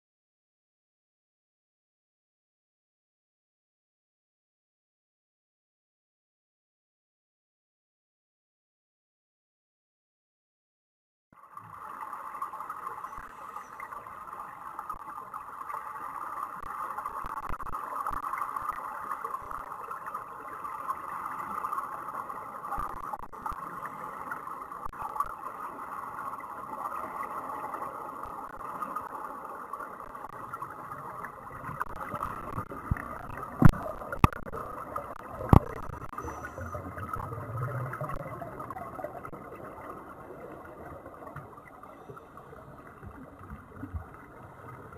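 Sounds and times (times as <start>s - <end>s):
underwater noise: 11.4s - 44.9s.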